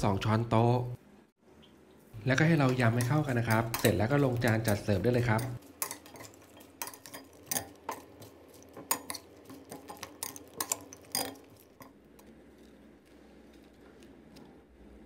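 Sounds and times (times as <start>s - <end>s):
metal spoon clinking on glass bowl: 2.9s - 11.9s.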